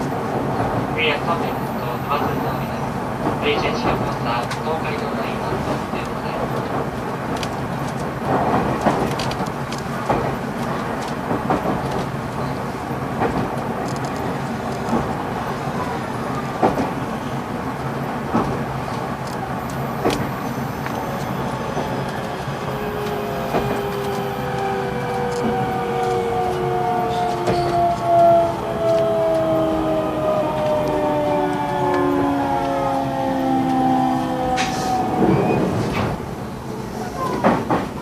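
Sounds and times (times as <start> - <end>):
train running rumble: 0.0 - 38.0
wheels clacking over rail joints: 5.5 - 32.8.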